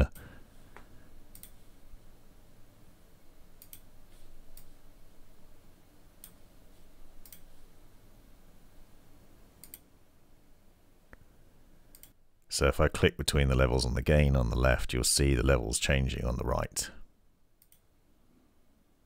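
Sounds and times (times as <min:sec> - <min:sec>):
faint room noise: 0:00.0 - 0:19.0
computer mouse clicks: 0:01.3 - 0:01.6, 0:03.6 - 0:03.9, 0:06.2 - 0:06.4, 0:07.2 - 0:07.5, 0:09.6 - 0:09.9, 0:11.9 - 0:12.2, 0:17.6 - 0:17.9.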